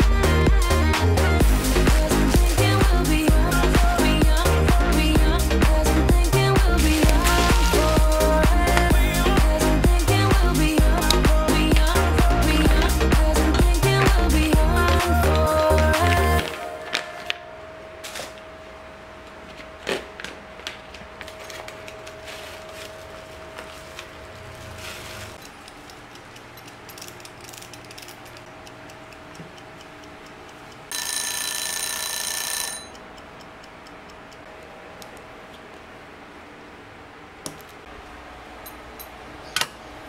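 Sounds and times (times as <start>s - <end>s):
kitchen timer ticking and clicking: 25.4s - 34.5s
timer bell ringing: 30.9s - 33.1s.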